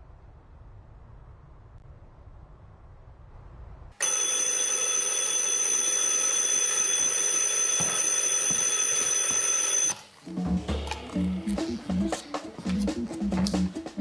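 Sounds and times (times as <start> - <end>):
alarm clock ringing: 4.0 - 10.0.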